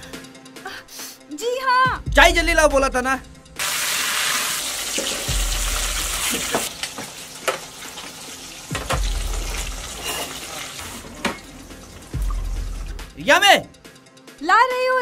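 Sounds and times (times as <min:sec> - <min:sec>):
sizzling hiss: 0:03.6 - 0:11.2
metal utensils knocking pots: 0:08.7 - 0:11.6.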